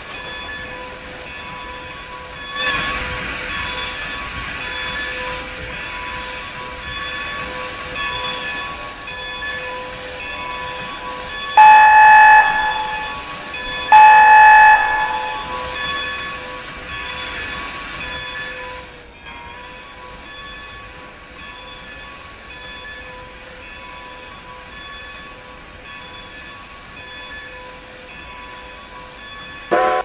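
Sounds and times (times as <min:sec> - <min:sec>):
train running: 0:00.0 - 0:30.0
steam whistle blasts: 0:11.6 - 0:16.3, 0:29.7 - 0:30.0.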